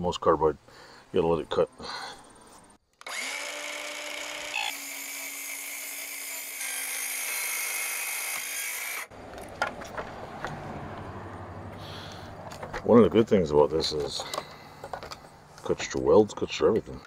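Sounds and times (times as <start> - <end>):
circular saw cutting sheet metal: 3.1 - 9.1.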